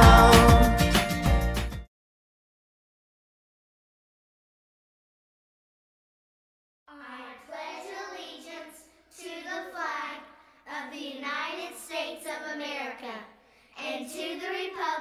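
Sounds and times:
children reciting together: 6.9 - 15.0.

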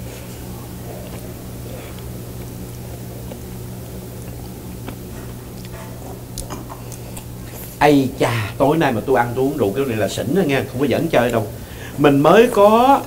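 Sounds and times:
people chewing: 0.0 - 8.6
steady low hum: 0.0 - 13.0.

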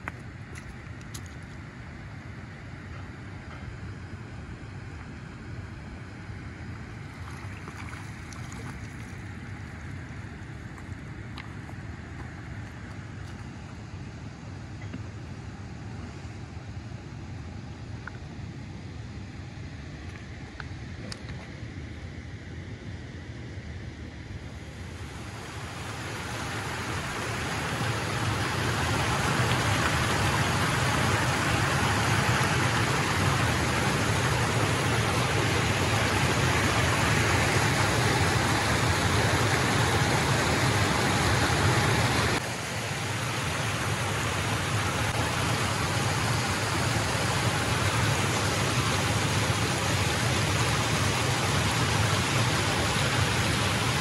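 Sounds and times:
water rushing over weir: 6.9 - 11.8, 24.7 - 54.0.

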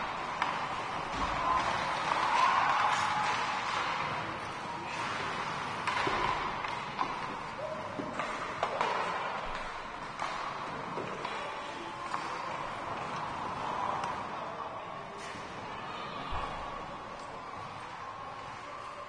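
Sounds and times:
hockey sticks and pucks knocking: 0.0 - 14.3
background hubbub: 0.0 - 19.0.

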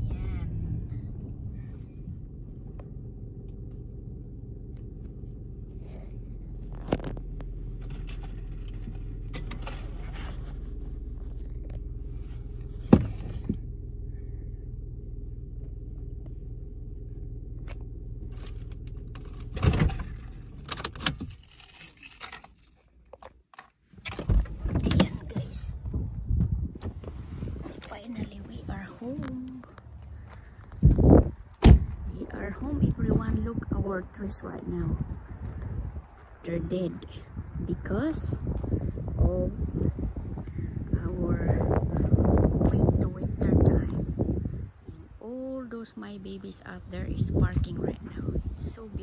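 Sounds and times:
car cabin rumble: 0.0 - 22.7, 23.9 - 49.0
jangling rattling handling noise: 18.3 - 25.3.

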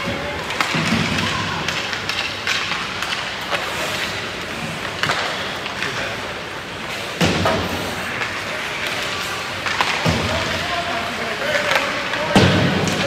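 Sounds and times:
pucks knocking sticks and boards: 0.0 - 13.0
skates hissing on ice: 3.3 - 10.0.

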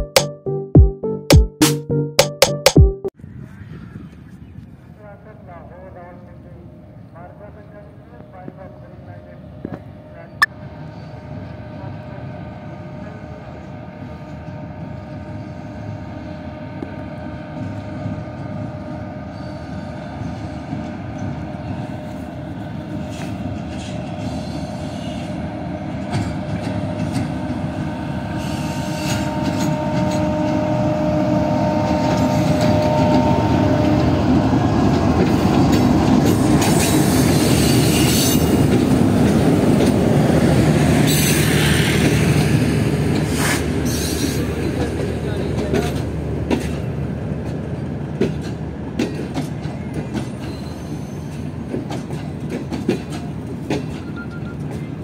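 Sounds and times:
diesel locomotive engine drone: 4.0 - 55.0
train wheels clattering: 43.1 - 55.0.

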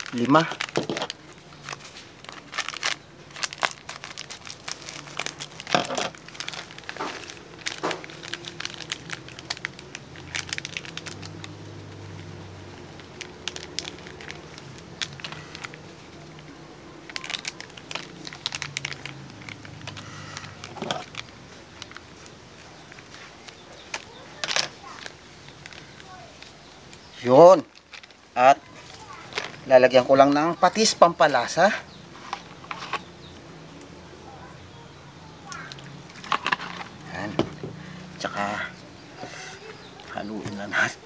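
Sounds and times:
sachets crinkling: 0.0 - 30.9, 35.5 - 37.2.

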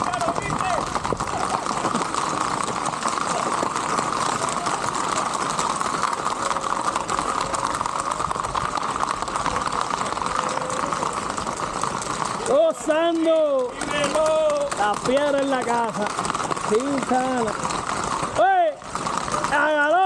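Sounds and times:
horse hooves on asphalt: 0.0 - 20.0.

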